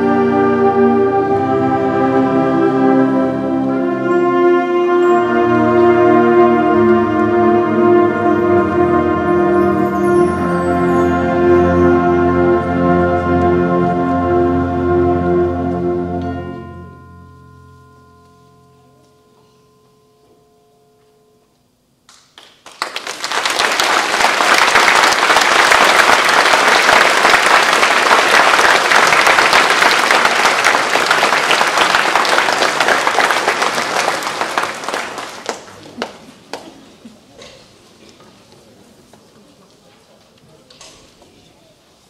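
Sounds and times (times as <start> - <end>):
concert band chord: 0.0 - 21.6
audience applause: 22.4 - 36.9.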